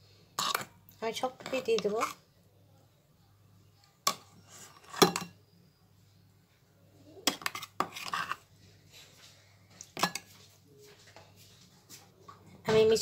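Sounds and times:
metal spoon clinking on dishes: 0:04.1 - 0:05.4.

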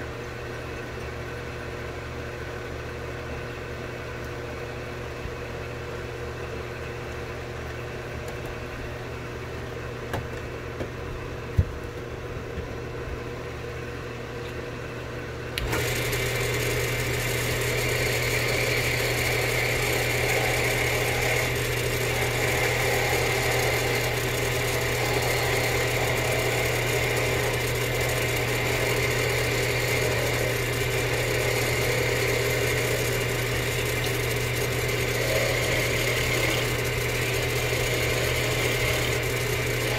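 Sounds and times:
electric motor humming: 0:15.5 - 0:39.9.

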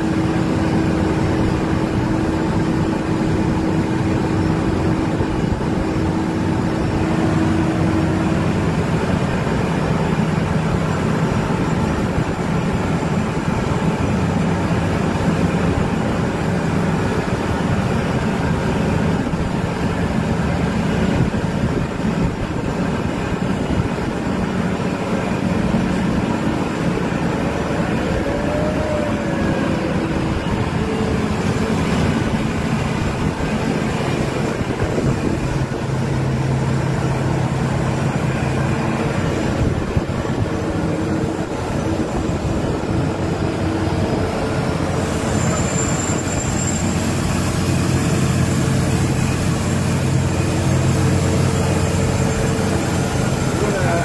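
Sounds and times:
diesel machinery humming: 0:00.0 - 0:54.0.

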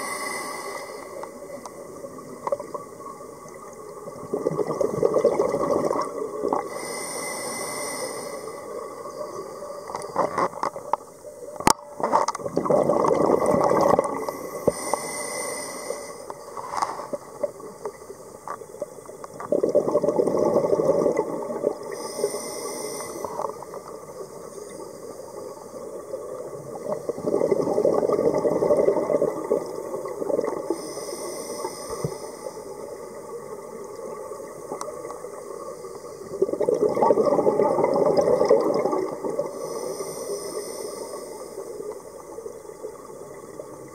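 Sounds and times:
regulator inhalation hiss: 0:00.0 - 0:01.4, 0:06.6 - 0:09.0, 0:14.2 - 0:17.2, 0:21.8 - 0:23.8, 0:30.7 - 0:33.2, 0:39.4 - 0:41.9
exhaled bubbles gurgling: 0:00.0 - 0:07.0, 0:08.4 - 0:14.8, 0:17.1 - 0:43.9.

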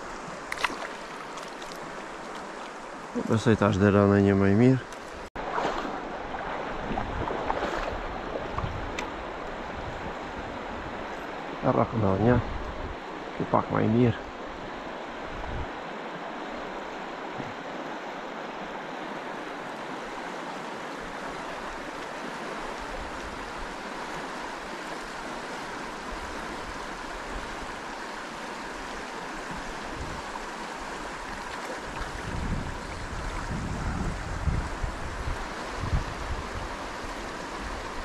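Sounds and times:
river water flowing: 0:00.0 - 0:38.0
wind buffeting microphone: 0:06.6 - 0:11.1, 0:15.3 - 0:15.7, 0:31.9 - 0:38.0.

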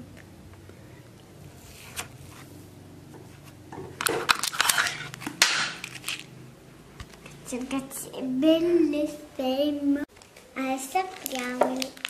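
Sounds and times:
plastic packaging crinkling: 0:04.0 - 0:06.3, 0:10.2 - 0:12.0.

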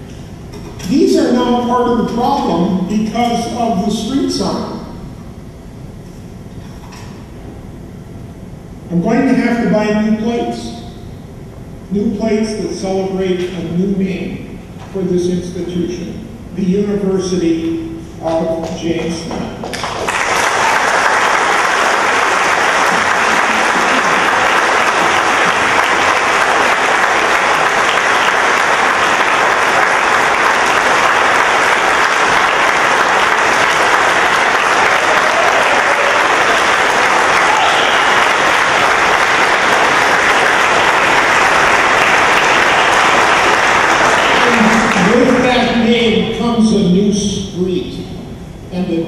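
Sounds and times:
large audience applauding: 0:19.6 - 0:45.6.

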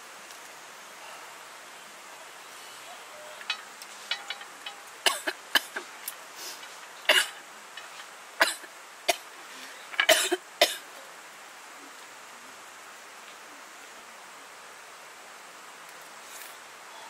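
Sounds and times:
woman coughing: 0:10.0 - 0:10.8.

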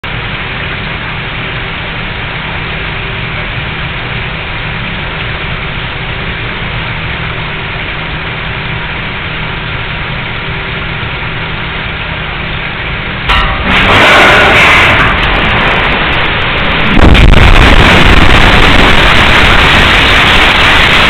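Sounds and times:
steady low rumble with hiss: 0:00.0 - 0:21.0
mine explosion rush: 0:13.0 - 0:21.0.

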